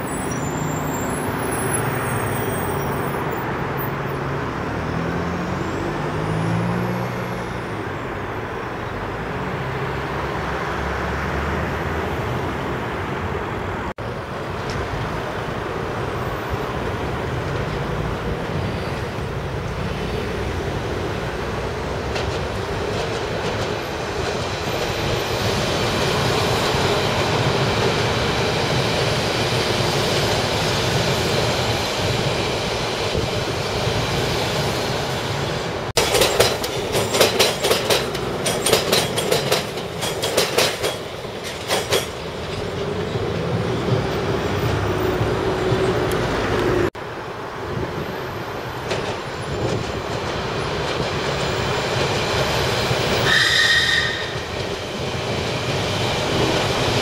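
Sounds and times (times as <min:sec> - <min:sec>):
train rumbling on tracks: 0:00.0 - 0:57.0.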